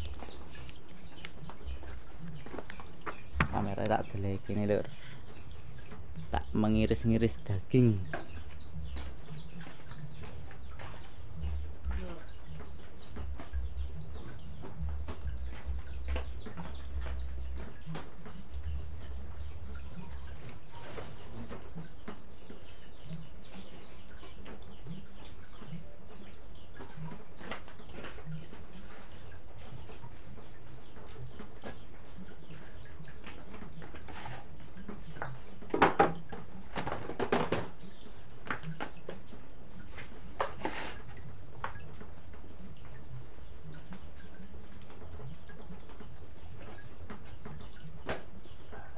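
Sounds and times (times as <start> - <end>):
chickens chirping: 0.0 - 48.9
wooden knocks on table: 3.4 - 3.6, 35.7 - 36.2.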